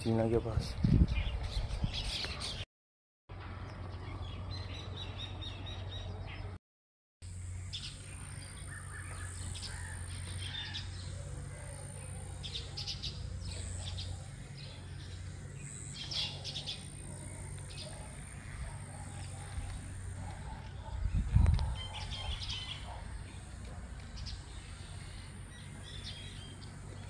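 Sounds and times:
small birds chirping: 7.4 - 27.0.

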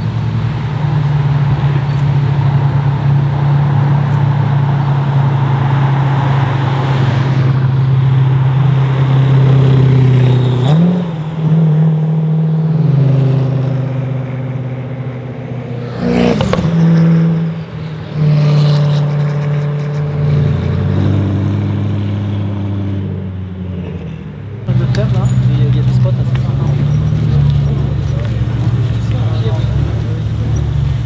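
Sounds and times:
deep car engine drone: 0.0 - 31.0.

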